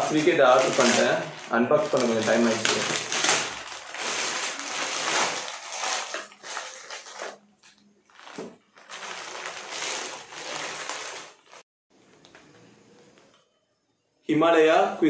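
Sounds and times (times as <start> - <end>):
plastic bag crinkling and rustling: 0.0 - 11.6.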